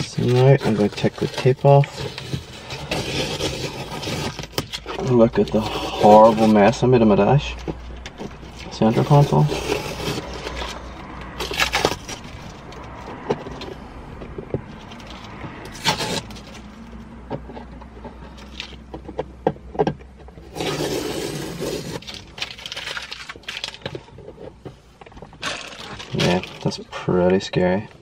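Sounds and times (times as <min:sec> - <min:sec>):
masking tape peeled and crumpled: 0:00.0 - 0:13.8, 0:14.7 - 0:17.0, 0:20.4 - 0:24.4.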